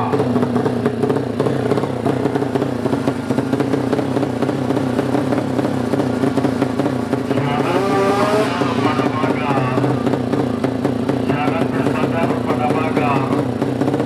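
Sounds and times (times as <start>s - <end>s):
motorcycle engine idling: 0.0s - 14.0s
voices calling out: 7.3s - 13.4s.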